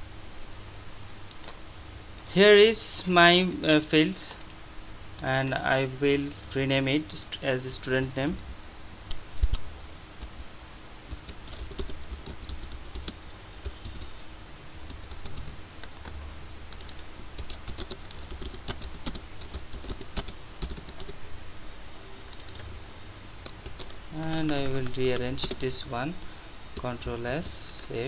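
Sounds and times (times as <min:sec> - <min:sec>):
computer keyboard typing: 0:11.1 - 0:14.1, 0:14.8 - 0:21.2, 0:22.3 - 0:22.6, 0:23.4 - 0:25.7.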